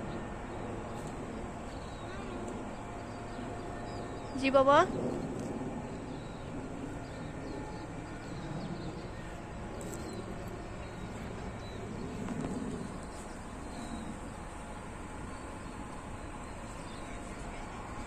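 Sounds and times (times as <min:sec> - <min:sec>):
birds chirping: 0:00.0 - 0:18.0
low background rumble: 0:00.0 - 0:18.0.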